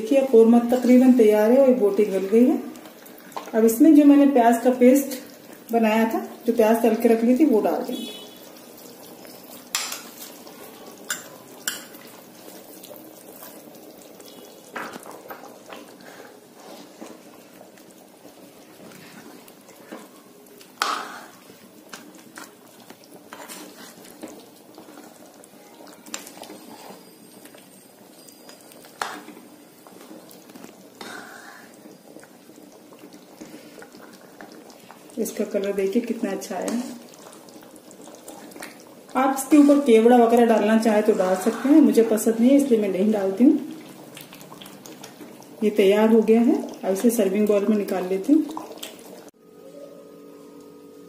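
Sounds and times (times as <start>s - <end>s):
curry bubbling: 0.0s - 49.4s
spatula scraping a pan: 20.8s - 21.4s, 23.3s - 25.2s, 26.1s - 27.2s, 29.0s - 29.4s, 39.3s - 40.1s, 40.8s - 42.2s.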